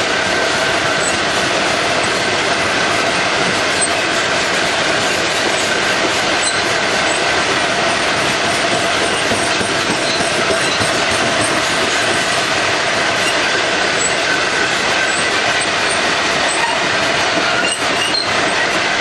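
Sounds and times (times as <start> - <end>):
train wheels rumbling on rail: 0.0 - 19.0
wheel squeal: 5.6 - 7.3, 8.7 - 11.7, 13.1 - 18.9.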